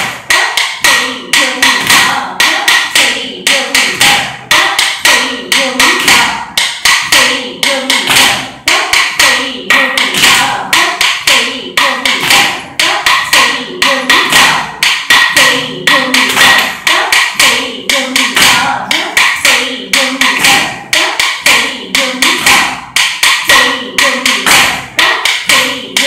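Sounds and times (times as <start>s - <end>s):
person chanting rhythm syllables: 0.0s - 26.0s
sharp wooden taps: 11.0s - 13.5s, 14.1s - 21.6s.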